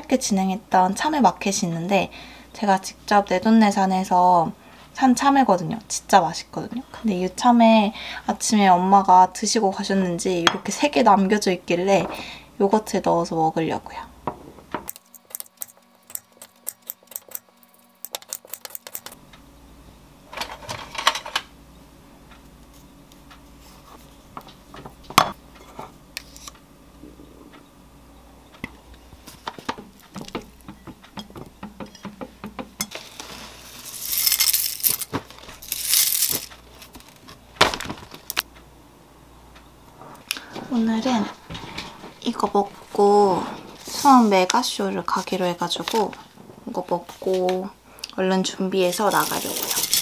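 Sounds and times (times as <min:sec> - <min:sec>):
cereal flakes pouring into bowl: 0:33.2 - 0:36.5, 0:49.1 - 0:50.0.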